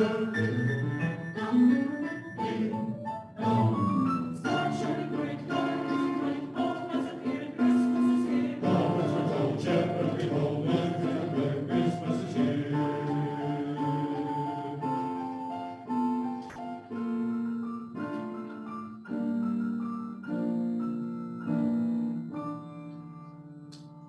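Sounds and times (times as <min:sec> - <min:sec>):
mixed choir singing: 0:00.0 - 0:15.9
grand piano accompaniment: 0:00.0 - 0:24.0.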